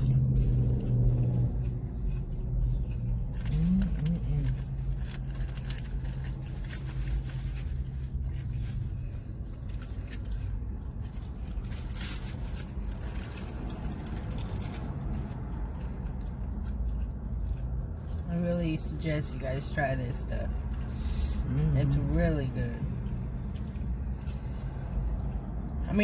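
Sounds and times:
person chewing: 0.0 - 18.3, 22.8 - 25.9
car low hum: 0.0 - 26.0
paper wrappers crinkling: 3.3 - 18.2.

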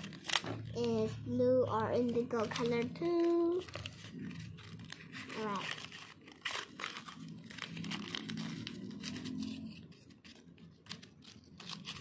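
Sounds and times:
thin wrapper crinkling and tearing: 0.0 - 1.0, 1.7 - 12.0.

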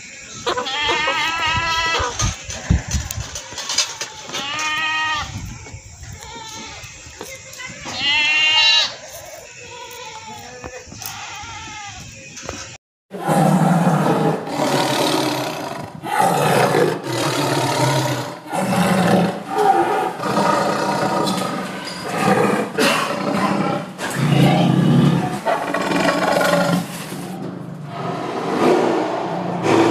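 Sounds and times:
big cat roaring: 13.1 - 29.9.

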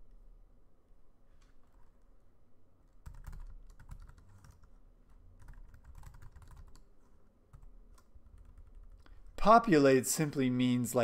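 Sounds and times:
keyboard typing clicks: 3.0 - 4.7, 5.4 - 6.9.

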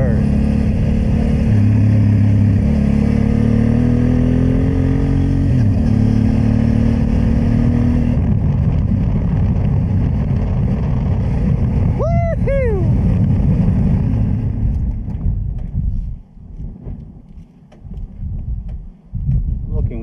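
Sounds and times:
motorcycle engine running: 0.0 - 12.2
wind and road noise: 0.0 - 20.0.

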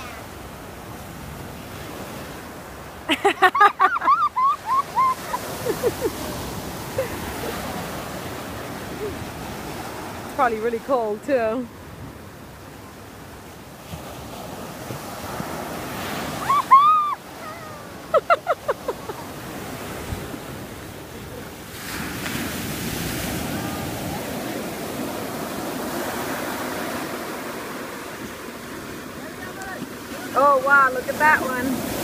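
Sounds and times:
ocean surf breaking: 0.0 - 32.0.

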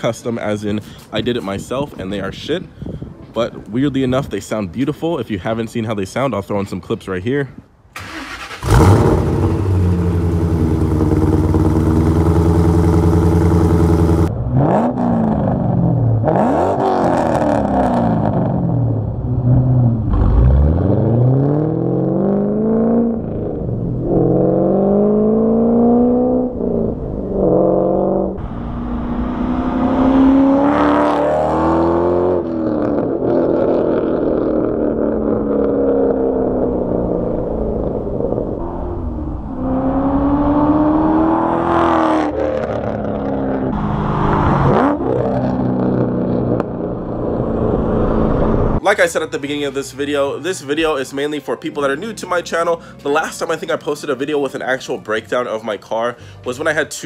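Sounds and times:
car engine accelerating: 8.0 - 48.8.

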